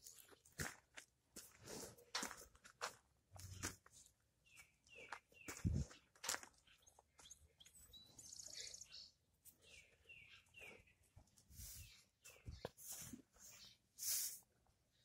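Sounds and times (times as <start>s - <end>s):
small birds chirping: 3.3s - 15.0s.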